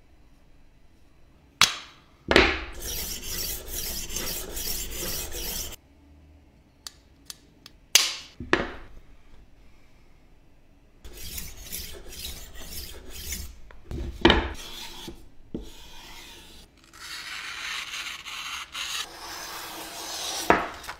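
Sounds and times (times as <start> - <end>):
knife sharpener rasping: 2.8 - 5.8, 11.1 - 13.6
blade slicing paper: 16.8 - 20.9.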